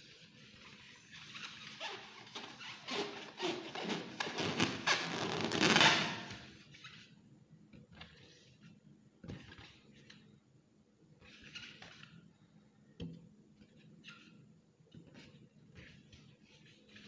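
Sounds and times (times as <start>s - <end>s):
hands rubbing a latex balloon: 0.0s - 7.2s.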